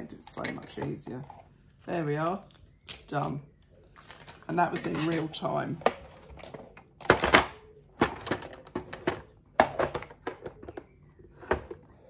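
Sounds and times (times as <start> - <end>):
objects clicking and thunking: 4.1 - 12.0.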